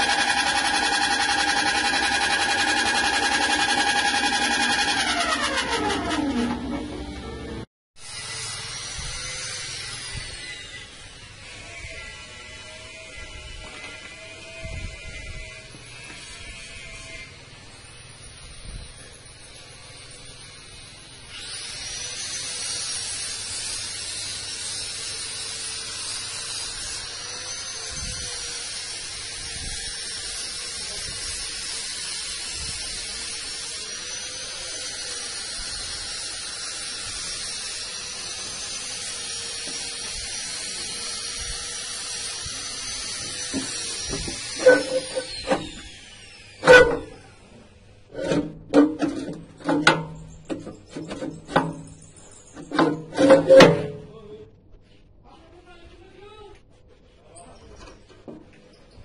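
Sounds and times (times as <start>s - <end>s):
mechanical whine: 0.0s - 22.5s, 37.0s - 54.4s.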